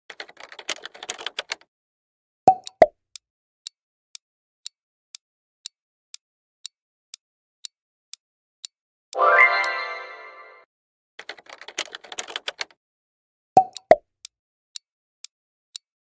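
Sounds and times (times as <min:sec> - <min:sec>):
clock ticking: 0:02.5 - 0:10.2, 0:13.6 - 0:14.1
loud time's-up tone: 0:09.2 - 0:10.6.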